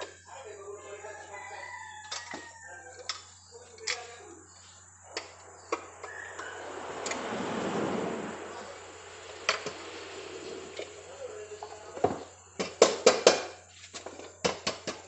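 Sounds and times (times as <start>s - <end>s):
metal tools clanking on engine: 2.0s - 4.2s.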